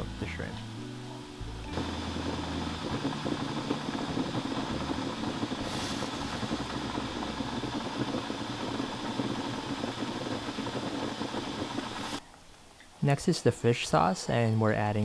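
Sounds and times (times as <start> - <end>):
soup boiling in covered pot: 1.7 - 12.2.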